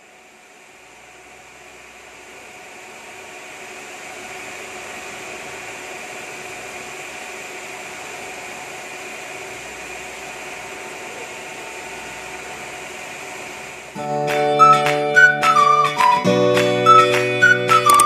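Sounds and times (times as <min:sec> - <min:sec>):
faint steady hum: 0:00.0 - 0:14.2.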